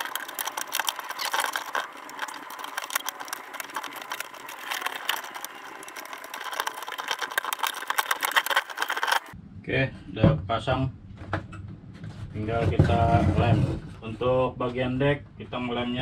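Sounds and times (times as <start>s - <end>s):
small wooden clicks: 0.0s - 9.4s
wood scraping: 0.0s - 9.4s.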